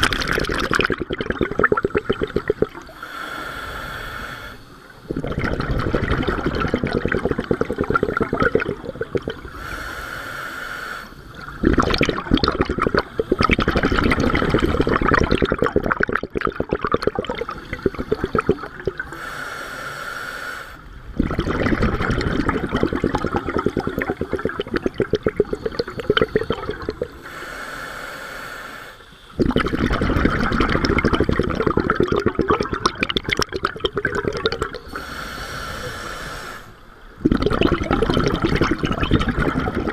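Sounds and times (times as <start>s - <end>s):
bubbling exhalation underwater: 0.0s - 3.0s, 5.1s - 9.6s, 11.3s - 19.1s, 21.2s - 27.1s, 29.4s - 34.9s, 37.2s - 39.9s
hissing regulator inhalations: 2.0s - 5.4s, 7.0s - 14.1s, 17.4s - 21.0s, 23.0s - 29.5s, 34.6s - 37.2s.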